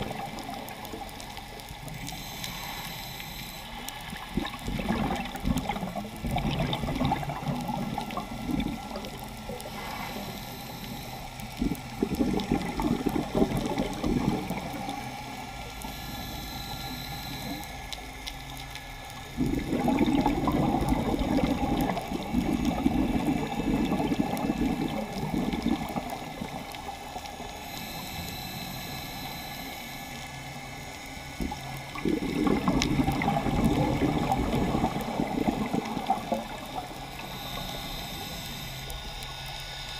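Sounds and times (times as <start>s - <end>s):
gurgling exhaled bubbles: 0.0s - 1.1s, 4.1s - 10.3s, 11.6s - 15.0s, 19.4s - 26.9s, 31.4s - 38.4s
regulator inhalation hiss: 2.0s - 3.9s, 9.6s - 11.4s, 27.4s - 31.5s, 37.0s - 39.9s.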